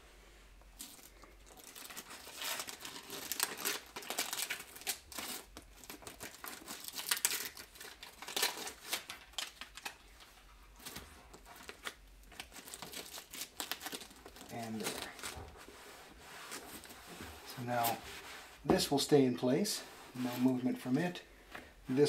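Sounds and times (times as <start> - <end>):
paper crackling and rustling: 0.8 - 18.4.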